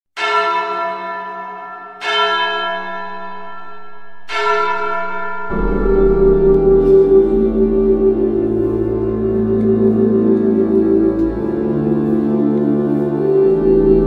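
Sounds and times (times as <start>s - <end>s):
church bell ringing: 0.2s - 14.0s
low music chord: 2.1s - 14.0s.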